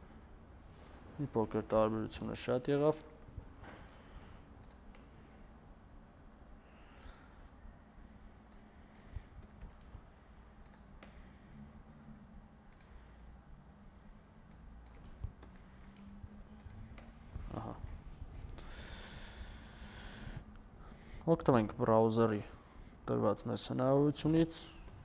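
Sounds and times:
faint low hum: 0.0s - 25.0s
computer keystrokes: 4.6s - 5.1s, 8.5s - 10.0s, 10.6s - 11.2s, 12.7s - 13.0s, 14.4s - 17.1s
mouse clicks: 4.6s - 5.1s, 10.6s - 11.2s.

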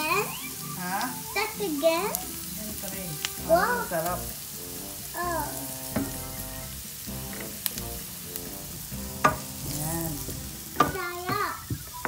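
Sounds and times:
garlic and onion sizzling in oil: 0.0s - 12.0s
wooden spoon knocking on pan: 5.8s - 7.8s, 8.8s - 12.0s.

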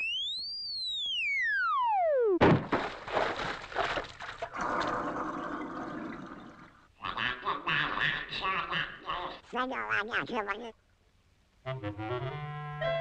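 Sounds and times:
big splash into water: 2.4s - 4.9s
water splashing and gurgling bubbles: 2.5s - 6.9s.

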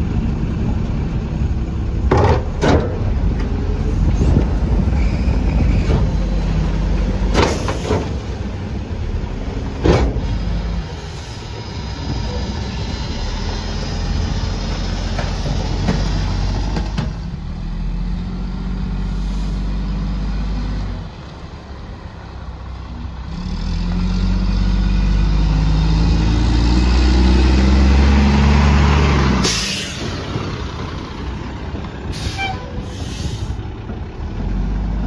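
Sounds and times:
air brake hiss: 29.4s - 30.2s, 32.1s - 33.6s.

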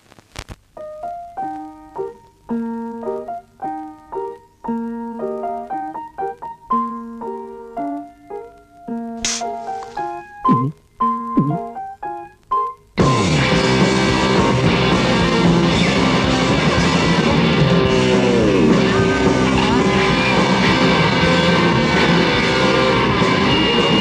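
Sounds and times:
rock music with electric guitar: 9.2s - 12.0s, 13.0s - 24.0s.

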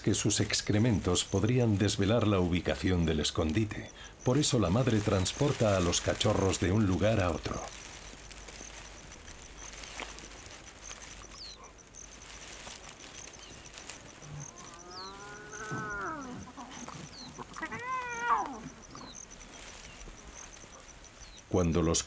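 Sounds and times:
leopard cubs mewing: 12.9s - 21.5s.

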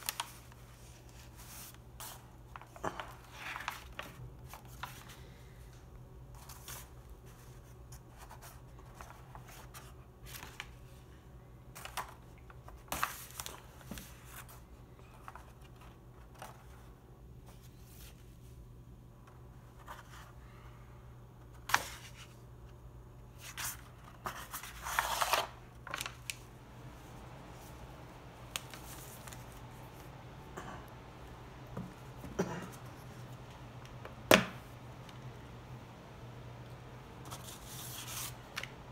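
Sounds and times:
stiff pages rustling: 0.0s - 5.4s, 6.3s - 11.0s, 11.7s - 18.4s, 23.3s - 26.5s, 27.5s - 30.2s
low steady hum: 0.0s - 38.9s.

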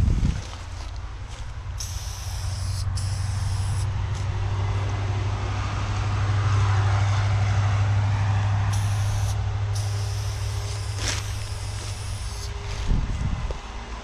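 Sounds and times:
heavy engine rumble: 0.0s - 14.0s
spray-paint can hissing: 1.8s - 3.9s, 8.7s - 12.6s.

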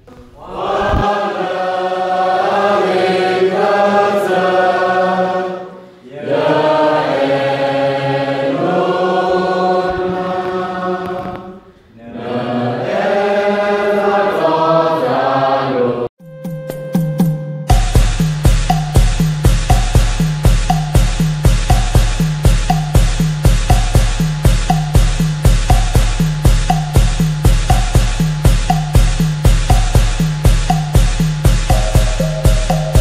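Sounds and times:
voices chanting together: 0.3s - 16.1s, 31.7s - 33.0s
instrumental music: 16.2s - 33.0s.

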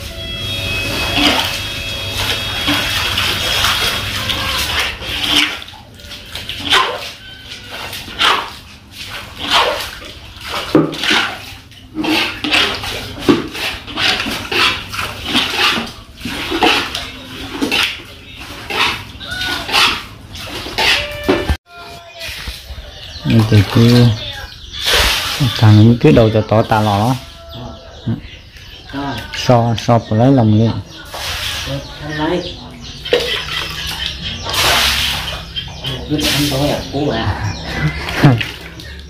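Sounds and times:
water splashing into bucket: 0.8s - 21.6s, 24.8s - 26.0s, 31.0s - 32.0s, 32.7s - 39.0s.

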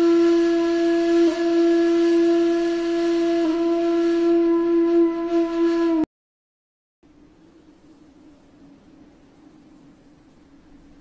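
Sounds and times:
flute holding a low note: 0.0s - 6.1s.

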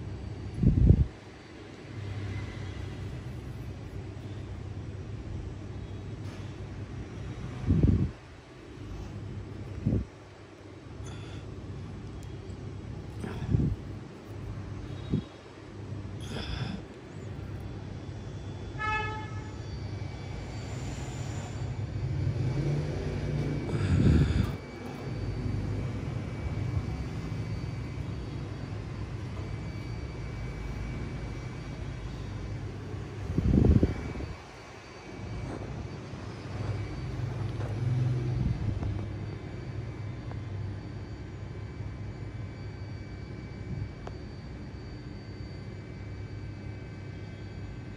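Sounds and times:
car horn toot: 18.8s - 19.6s
vehicle engine rumble passing: 20.7s - 28.3s.

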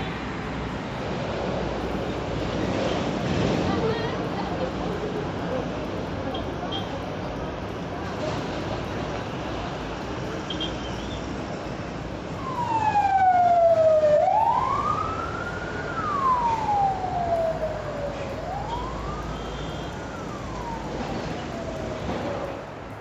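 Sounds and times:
road traffic noise: 0.0s - 23.0s
emergency siren wailing: 12.2s - 22.6s.

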